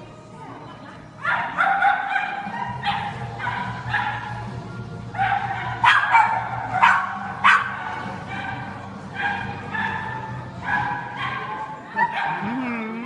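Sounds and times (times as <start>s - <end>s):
dog barking in high-pitched yaps: 1.2s - 4.4s, 5.2s - 12.5s.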